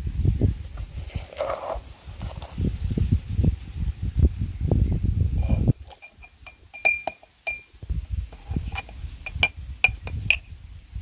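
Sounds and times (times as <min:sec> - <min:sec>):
spoon clinking against jar: 0:05.4 - 0:07.7, 0:08.7 - 0:10.4.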